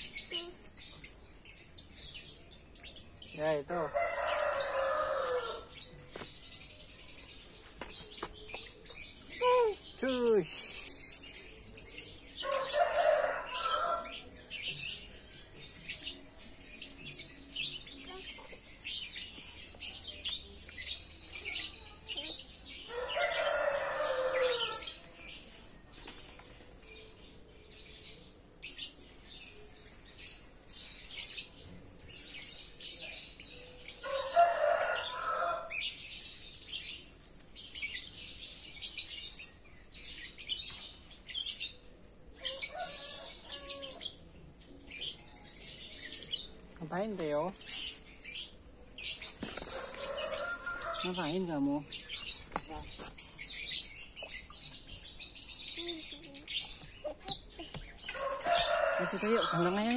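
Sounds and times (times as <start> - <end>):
birds chirping: 0.0 - 59.9.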